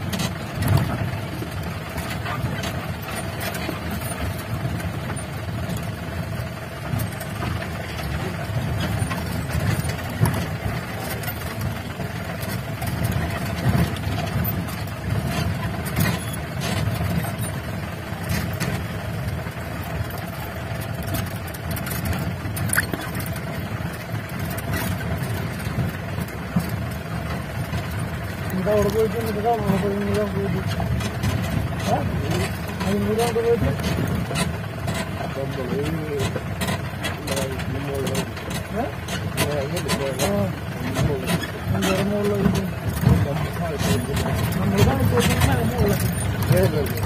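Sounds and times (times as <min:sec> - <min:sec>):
car engine running: 0:00.0 - 0:47.0
knocks and rattles from bumps: 0:00.0 - 0:47.0.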